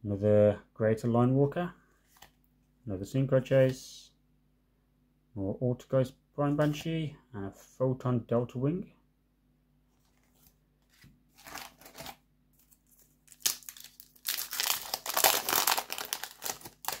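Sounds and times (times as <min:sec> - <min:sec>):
foil pack tearing open: 0:11.3 - 0:17.0
foil wrapper crinkling: 0:11.3 - 0:17.0.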